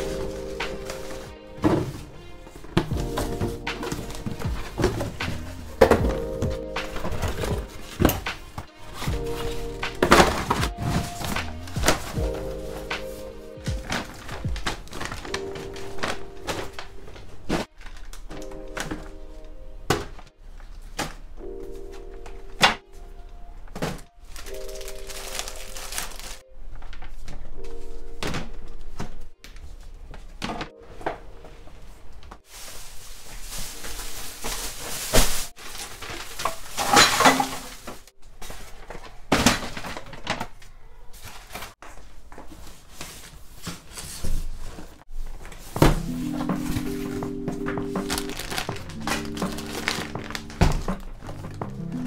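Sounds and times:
background music with chords: 0.0 - 20.4, 21.4 - 26.3, 45.8 - 52.0.

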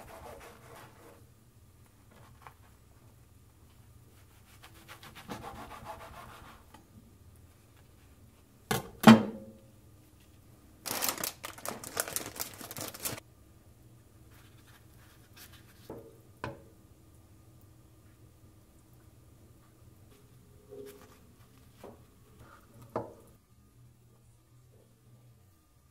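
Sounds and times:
rustling and scraping of food: 10.1 - 13.2, 14.2 - 15.9, 20.1 - 22.9.

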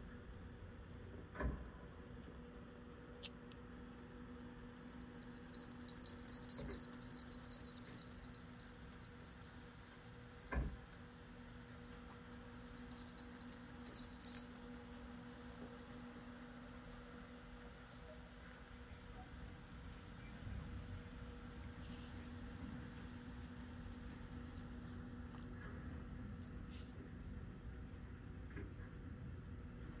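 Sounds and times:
faint steady hum: 0.0 - 30.0
cat collar bell jingling: 4.5 - 16.8.

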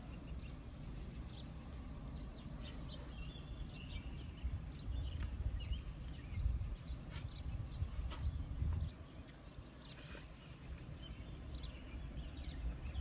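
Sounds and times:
birds chirping faintly: 0.0 - 13.0
chewing: 7.0 - 11.5.

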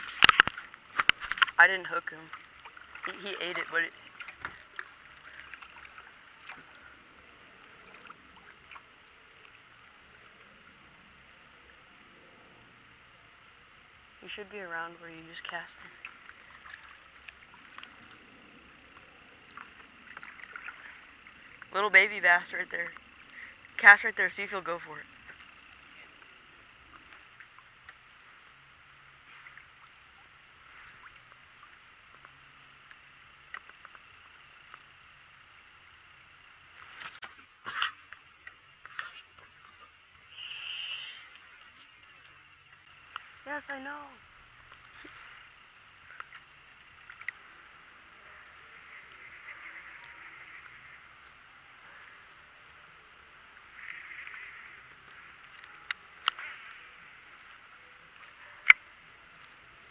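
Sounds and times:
paddle dipping and splashing: 0.0 - 14.5, 15.2 - 43.5, 44.2 - 59.9
faint steady hiss: 0.0 - 59.9
small chirps: 37.7 - 43.3.

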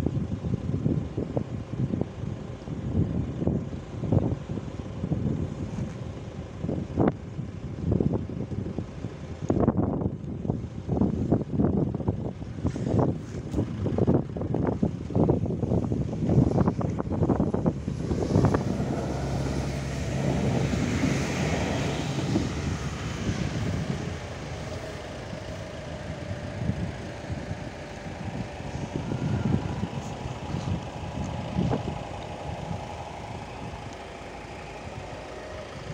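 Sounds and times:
diesel railcar engine hum: 0.0 - 35.9
wind buffeting microphone: 0.0 - 35.9
rail noise: 15.7 - 35.9.

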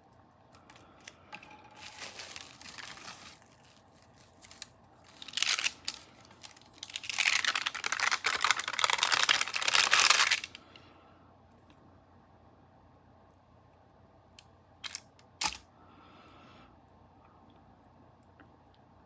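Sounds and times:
plastic sheeting crinkling: 0.6 - 10.5.

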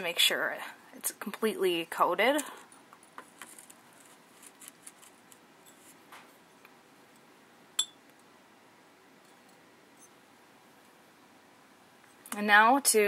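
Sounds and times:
quiet room hiss: 0.0 - 13.0
sharp glass clink: 7.8 - 8.0.

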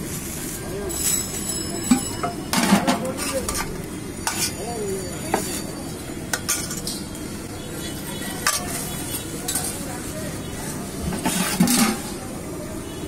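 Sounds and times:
metal ladle scraping pot: 0.9 - 7.2, 7.8 - 9.8, 11.0 - 12.2.

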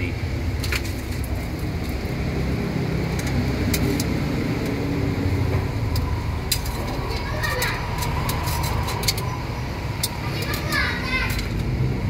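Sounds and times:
utensils clinking on metal pot: 5.9 - 9.4, 10.0 - 11.6.

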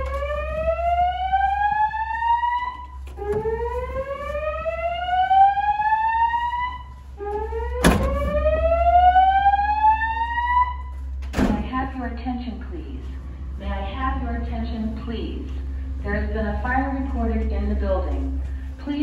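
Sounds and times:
fire alarm whoop tone: 0.0 - 11.1
voice announcements: 0.0 - 19.0.

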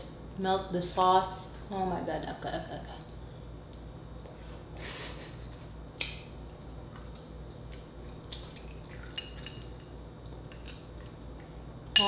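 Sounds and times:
lip smacks: 6.0 - 9.0.

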